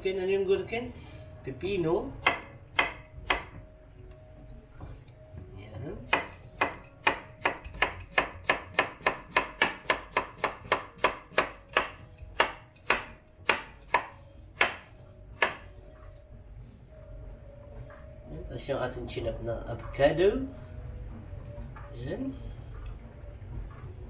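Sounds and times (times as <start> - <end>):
knife chopping on wooden board: 2.2 - 3.6, 6.1 - 14.8, 15.4 - 15.7.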